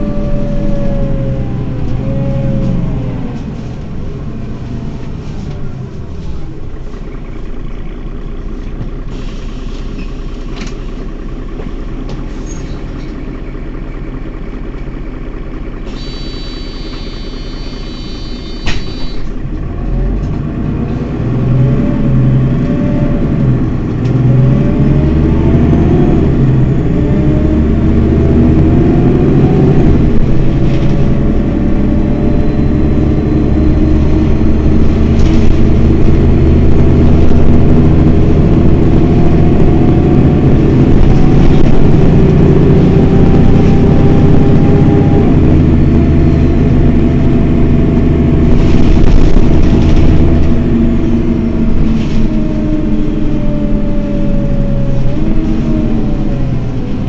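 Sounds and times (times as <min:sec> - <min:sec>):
steady high tone: 0:00.0 - 0:03.4, 0:15.9 - 0:19.3
bus engine idling: 0:00.0 - 0:57.0.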